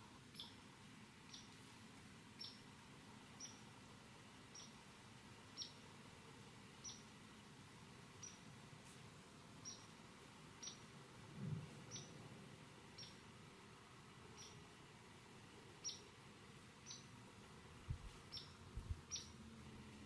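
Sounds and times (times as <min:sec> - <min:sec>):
small animal high chirps: 0:00.4 - 0:00.6, 0:04.6 - 0:04.8, 0:13.0 - 0:13.2, 0:14.4 - 0:14.6, 0:15.8 - 0:16.0, 0:16.8 - 0:17.1, 0:18.3 - 0:18.5, 0:19.1 - 0:19.3.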